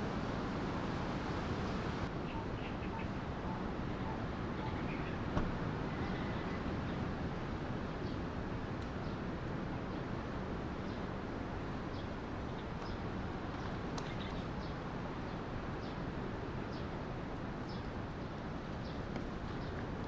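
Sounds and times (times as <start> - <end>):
steady rushing noise: 0.0 - 2.2.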